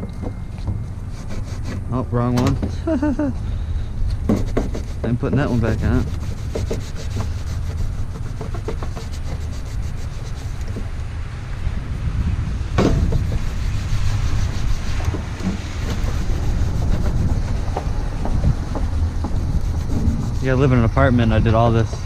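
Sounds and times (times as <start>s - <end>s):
steady low rumble: 0.0s - 22.0s
rag wiping plastic reservoir: 0.8s - 3.2s, 4.2s - 10.9s, 12.8s - 22.0s
small clicks and scrapes: 4.2s - 10.9s.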